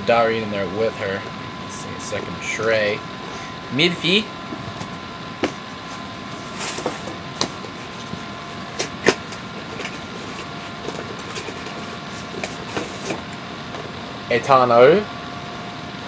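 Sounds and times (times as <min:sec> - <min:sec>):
room hum: 0:00.0 - 0:16.0
cardboard and plastic rustle: 0:04.6 - 0:13.9.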